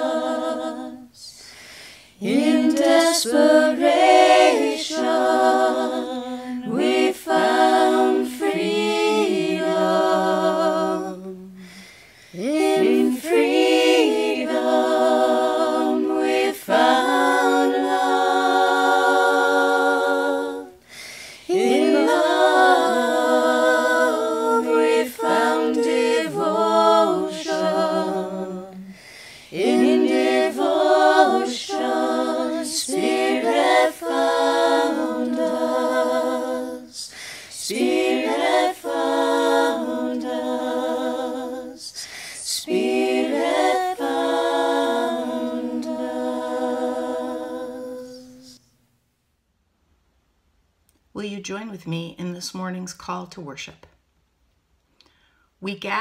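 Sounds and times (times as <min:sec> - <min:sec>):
a cappella singing: 0:00.0 - 0:48.9
singer breathing: 0:01.3 - 0:02.2, 0:11.6 - 0:12.4, 0:20.8 - 0:21.5, 0:28.8 - 0:29.5, 0:37.1 - 0:37.5, 0:42.0 - 0:42.5, 0:54.9 - 0:55.6.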